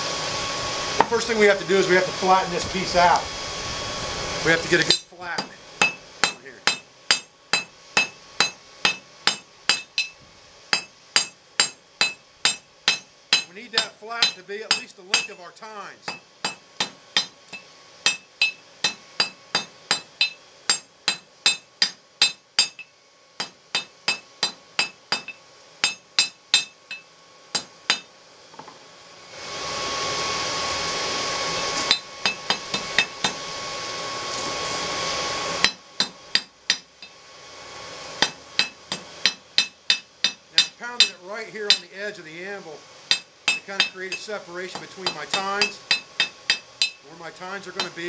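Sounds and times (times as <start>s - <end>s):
forge blower hum: 0.0s - 48.0s
hammer ringing on metal: 4.9s - 15.5s, 38.2s - 41.9s, 43.1s - 47.0s, 47.7s - 48.0s.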